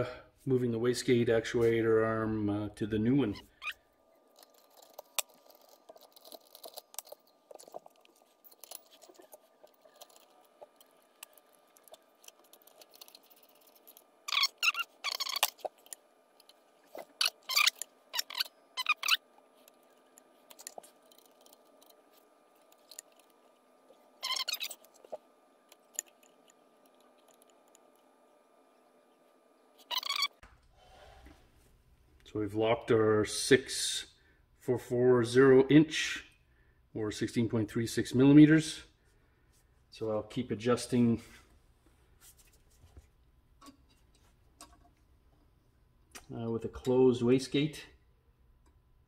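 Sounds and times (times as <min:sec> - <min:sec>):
faint handling noises: 0:04.2 - 0:32.3
small metal tools clinking: 0:04.3 - 0:19.2.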